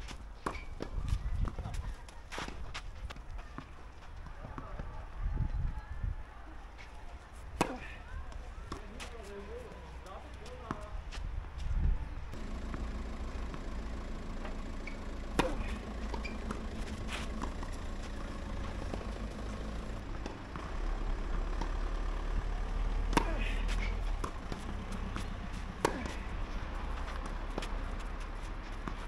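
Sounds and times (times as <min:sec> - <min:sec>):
tennis ball strikes: 0:07.5 - 0:09.2, 0:12.4 - 0:20.7, 0:22.8 - 0:29.0.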